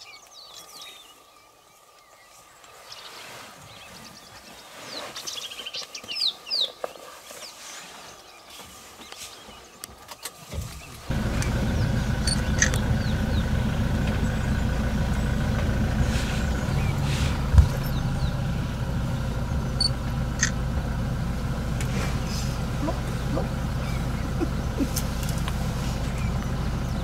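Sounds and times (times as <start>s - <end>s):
bird chirps: 8.3s - 20.6s, 22.2s - 27.0s
vehicle engine running: 11.0s - 27.0s.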